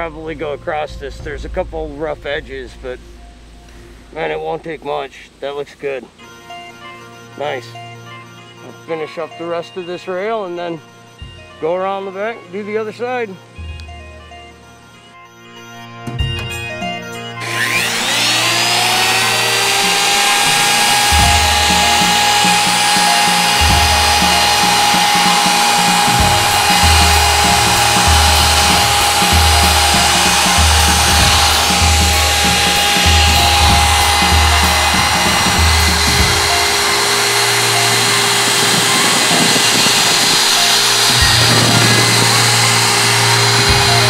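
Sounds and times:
wood router whining: 15.9 - 44.0.

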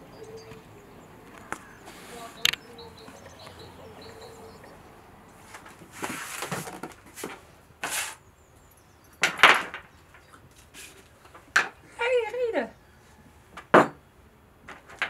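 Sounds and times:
faint bird chirps: 0.0 - 5.0.

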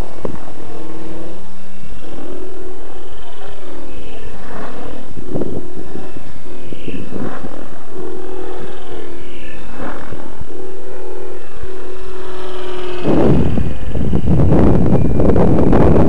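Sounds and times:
motor whine: 0.0 - 16.0
rc helicopter rotor hum: 0.0 - 16.0
loud rushing noise: 3.5 - 16.0.

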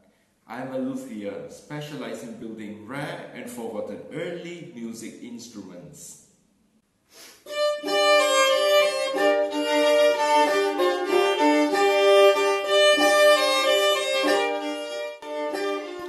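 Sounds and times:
bowed fiddle melody: 7.5 - 16.0
lute playing: 7.5 - 16.0.

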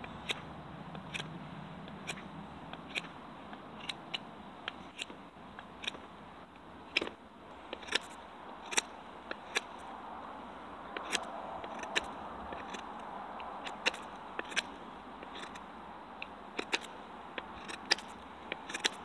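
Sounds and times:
knife shaving wood: 6.9 - 10.0, 10.9 - 15.7, 16.5 - 19.0.

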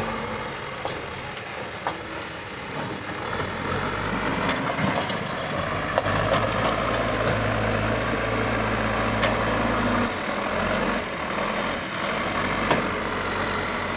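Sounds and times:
diesel engine running under load: 0.0 - 13.9.

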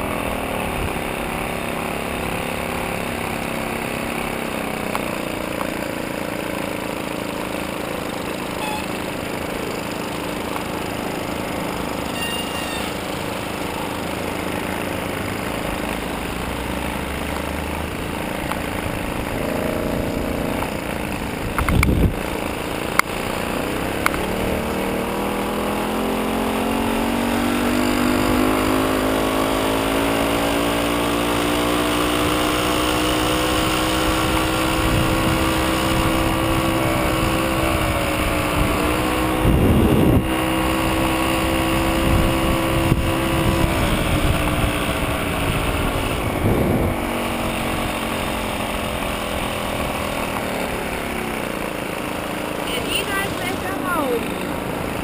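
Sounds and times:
moped engine running: 0.0 - 55.0
sharp clicks: 21.5 - 22.0.

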